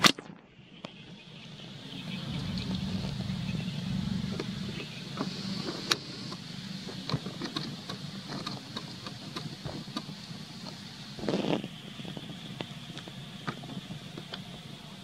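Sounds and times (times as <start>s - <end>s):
high hiss: 0.8s - 15.0s
low rumble: 1.3s - 8.8s
small clicks and rustles: 5.2s - 14.7s.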